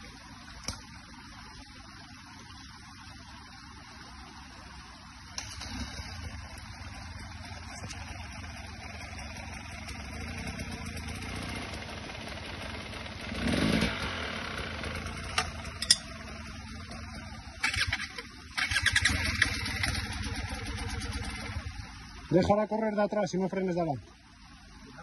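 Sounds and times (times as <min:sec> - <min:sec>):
dirt bike engines running: 0:05.3 - 0:23.8.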